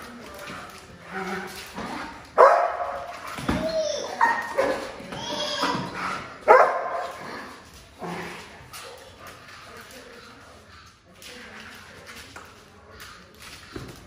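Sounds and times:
dog barking: 2.4s - 3.0s, 6.4s - 7.1s.

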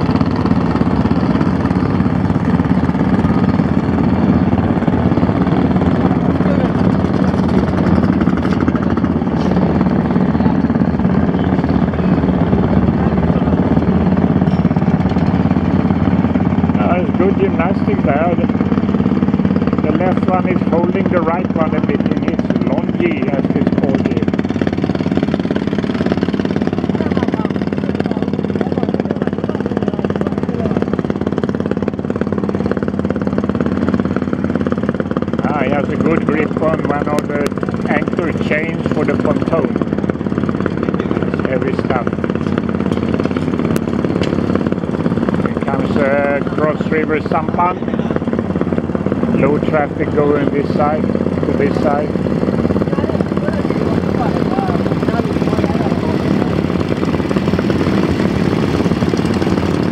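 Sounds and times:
engine running steadily: 0.0s - 59.9s.

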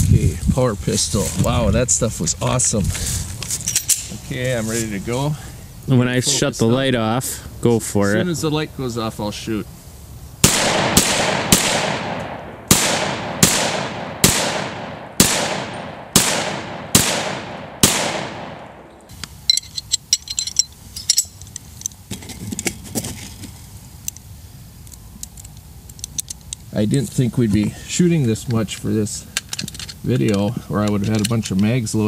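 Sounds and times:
rapid pistol shots echoing: 10.4s - 18.9s
handling clicks and rattles: 19.0s - 26.7s, 28.4s - 31.7s.

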